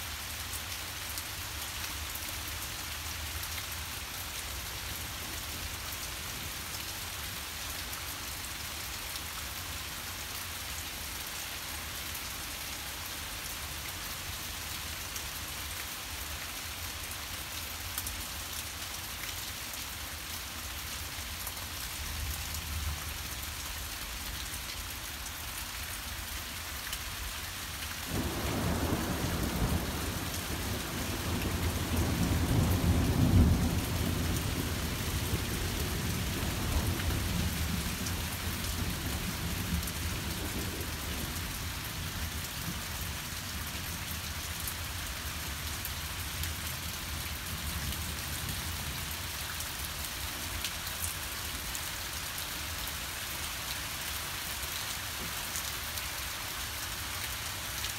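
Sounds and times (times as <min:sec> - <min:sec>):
heavy rain pouring: 0:21.6 - 0:57.9.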